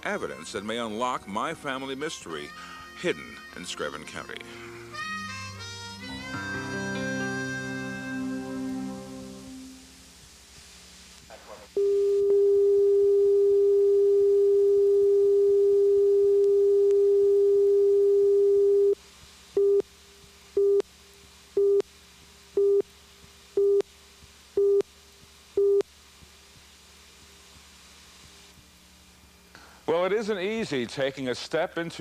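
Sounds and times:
steady electronic test tone: 0:11.8 - 0:19.0.

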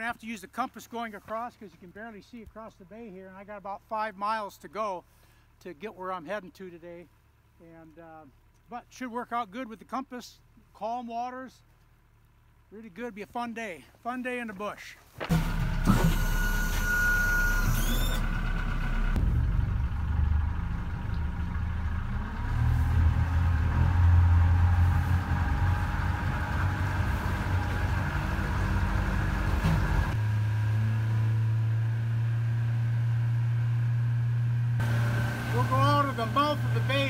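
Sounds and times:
short electronic beep: 0:15.8 - 0:18.3
outboard motor running: 0:31.2 - 0:37.0.

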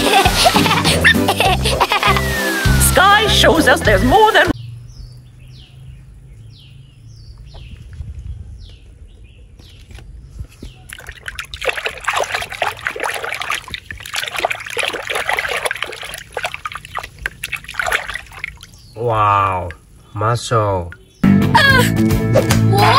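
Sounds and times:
water trickling: 0:10.8 - 0:21.2
hand splashing water in tub: 0:10.9 - 0:19.8.

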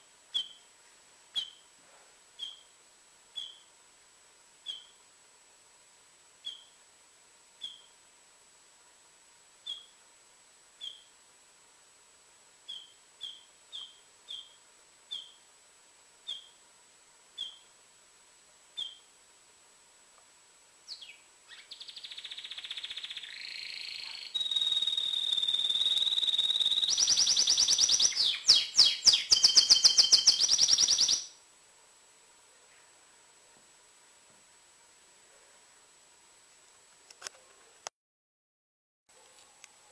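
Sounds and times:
canary call notes: 0:00.3 - 0:00.7, 0:01.3 - 0:01.7, 0:02.4 - 0:02.8, 0:03.4 - 0:03.7, 0:04.6 - 0:05.0, 0:06.4 - 0:06.8, 0:07.6 - 0:08.0, 0:09.6 - 0:10.0, 0:10.8 - 0:11.1, 0:12.7 - 0:15.5, 0:16.2 - 0:16.6, 0:17.4 - 0:17.7, 0:18.8 - 0:19.1, 0:20.9 - 0:31.3
canary song of fast trills: 0:00.3 - 0:00.7, 0:01.3 - 0:01.7, 0:02.4 - 0:03.7, 0:04.6 - 0:05.0, 0:06.4 - 0:06.8, 0:07.6 - 0:08.0, 0:09.6 - 0:10.0, 0:10.8 - 0:11.1, 0:12.6 - 0:15.5, 0:16.2 - 0:16.6, 0:17.4 - 0:17.8, 0:18.8 - 0:19.1, 0:20.9 - 0:31.4.

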